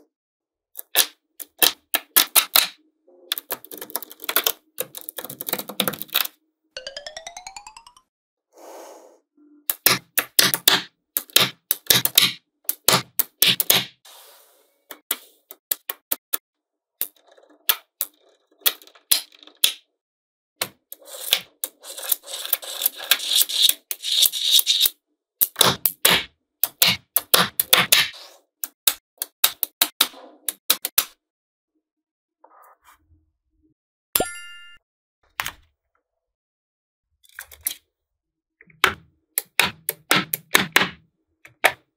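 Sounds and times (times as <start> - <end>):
magnetic balls clicking together: 0.8 - 6.4.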